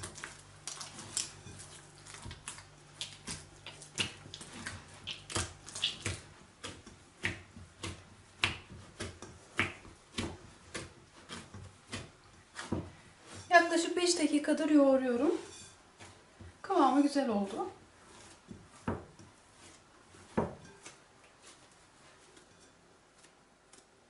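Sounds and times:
hands kneading dough smacks: 0.0 - 13.4.

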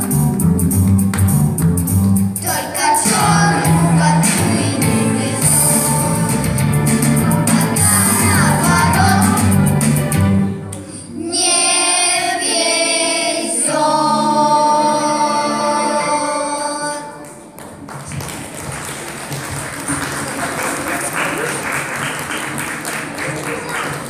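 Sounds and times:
children's choir singing: 2.4 - 17.6
audience applause: 17.8 - 24.0.

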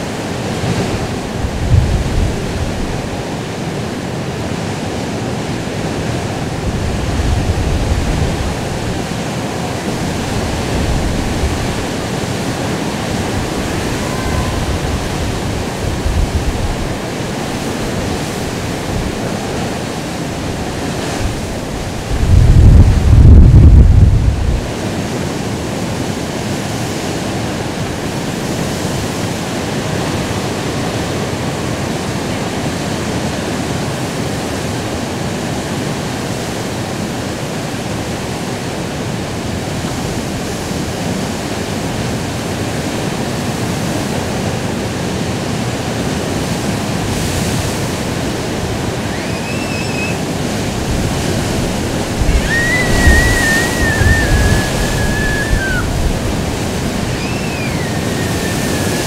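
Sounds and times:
surf: 0.0 - 59.0
wind: 0.0 - 59.0
wave surge: 10.1 - 18.5, 48.3 - 59.0
high thin wavering tones: 13.5 - 15.8.

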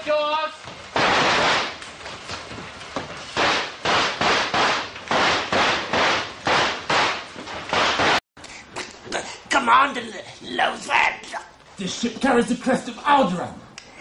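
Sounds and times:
blaster shots: 0.9 - 1.8.

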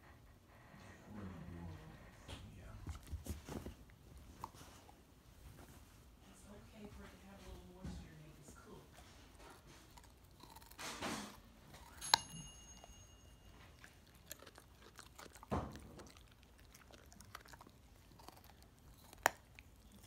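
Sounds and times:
dog crunching carrot: 9.0 - 12.9, 13.5 - 20.0
sharp ringing click: 12.0 - 13.2.

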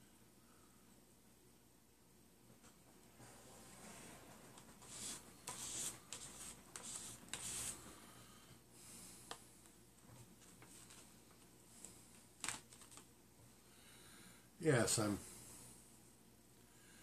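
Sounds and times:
scratchy rustles: 3.2 - 7.9.

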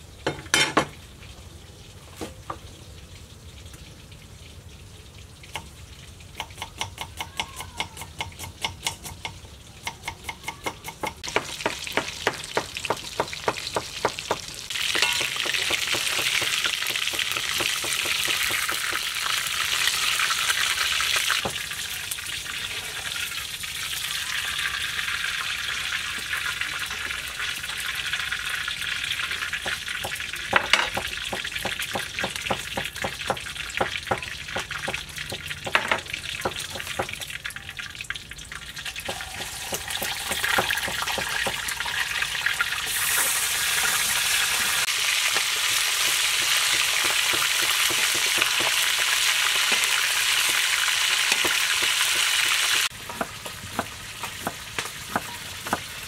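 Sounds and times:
fish frying in hot oil: 0.0 - 56.0.

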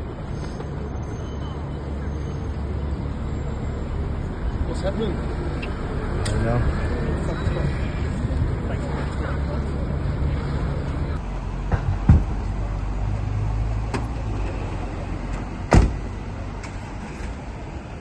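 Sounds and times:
street traffic rumble: 0.0 - 18.0
van doors shutting: 13.8 - 17.4.

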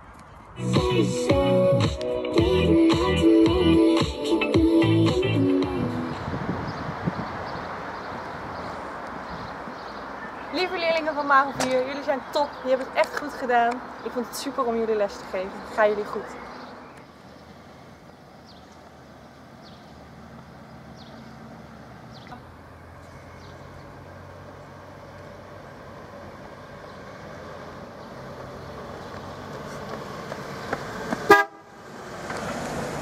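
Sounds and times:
car horn blast: 31.3 - 31.8.

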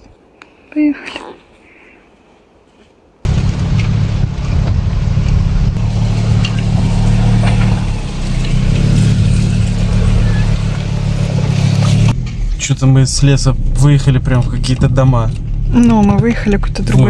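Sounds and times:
car engine and tyre hum: 3.2 - 17.0.

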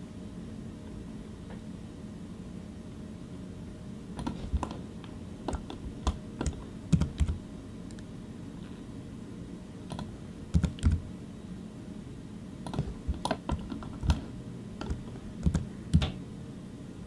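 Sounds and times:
low room hum: 0.0 - 17.0
keyboard keys tapping: 4.2 - 4.8, 5.5 - 7.4, 9.9 - 11.0, 12.6 - 16.2.

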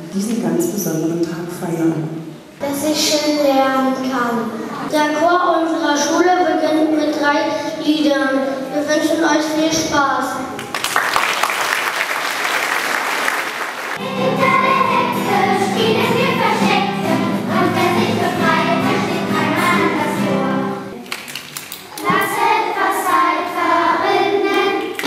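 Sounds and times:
applause: 10.6 - 14.0, 21.0 - 22.0
children's choir singing: 13.8 - 21.0, 21.9 - 25.0
guitar accompaniment: 14.0 - 21.1.

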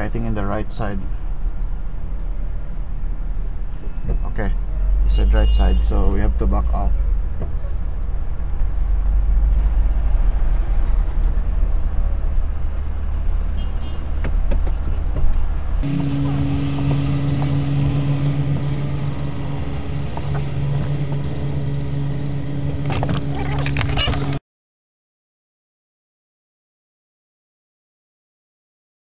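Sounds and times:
car engine low rumble: 0.0 - 24.4
steady low hum: 15.5 - 24.4.

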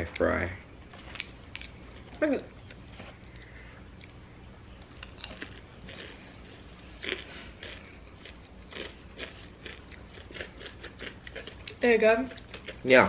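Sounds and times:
chewing crunchy fries: 0.1 - 13.0.

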